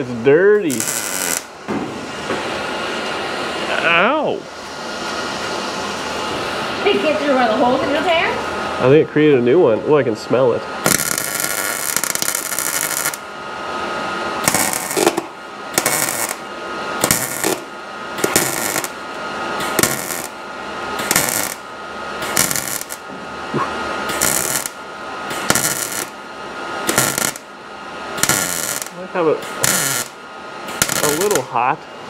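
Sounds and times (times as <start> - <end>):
welding arc crackling: 0.0 - 2.6, 10.8 - 13.4, 14.1 - 31.6.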